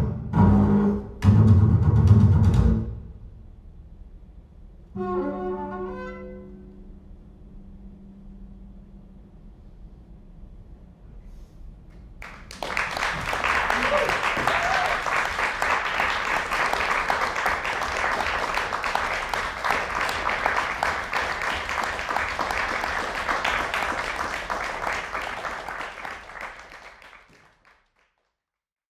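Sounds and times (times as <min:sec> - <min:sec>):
audience applauding: 0:12.2 - 0:28.4.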